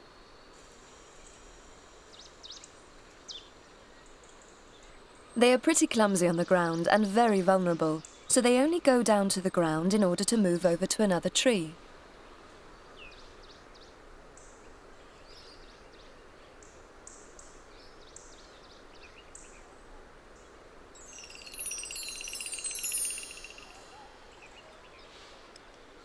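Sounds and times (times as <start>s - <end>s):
background hiss: 0.0s - 26.0s
bird trill with falling notes: 21.1s - 24.0s
short high bird chirps: 21.1s - 24.0s.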